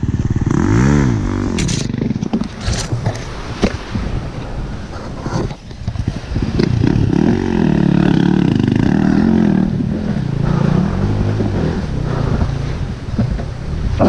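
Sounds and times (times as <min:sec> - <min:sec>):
dirt bike engine revving: 0:00.0 - 0:02.9, 0:05.9 - 0:14.0.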